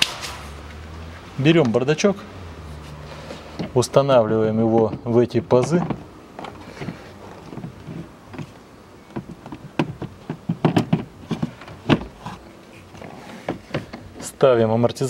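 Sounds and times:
plastic glovebox knocking and clicking: 0:03.6 - 0:12.3, 0:13.5 - 0:14.1.

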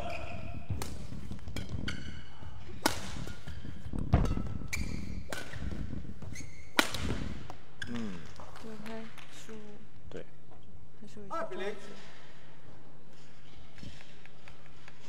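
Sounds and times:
rackets smacking shuttlecock: 0:00.0 - 0:07.8
shoes squeaking on court: 0:00.0 - 0:08.4.

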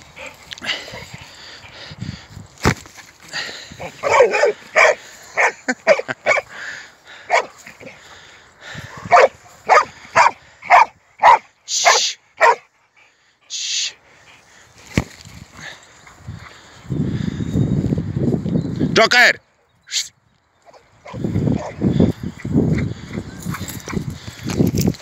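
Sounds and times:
dog barking: 0:04.0 - 0:06.5, 0:07.3 - 0:07.6, 0:09.1 - 0:12.7.

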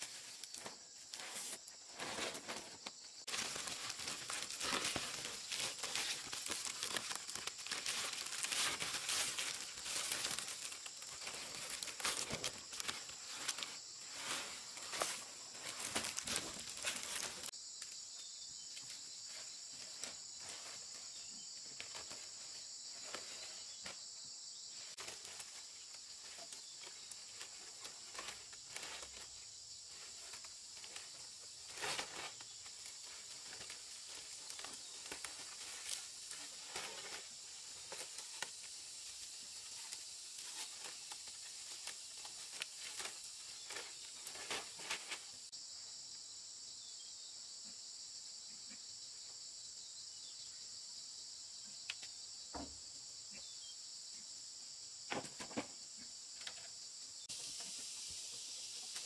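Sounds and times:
dry palm fronds rustling: 0:00.0 - 0:17.5, 0:19.3 - 0:23.8, 0:24.8 - 0:45.5
insects buzzing: 0:00.0 - 0:59.0.

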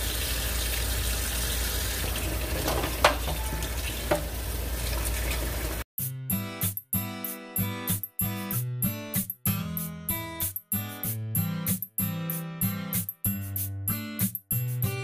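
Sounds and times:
tap running into metal sink: 0:02.1 - 0:05.6
acoustic guitar music: 0:06.3 - 0:13.2.

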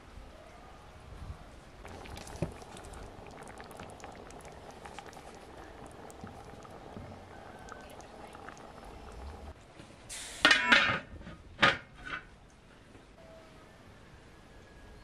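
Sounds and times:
sauce simmering: 0:01.8 - 0:09.6.

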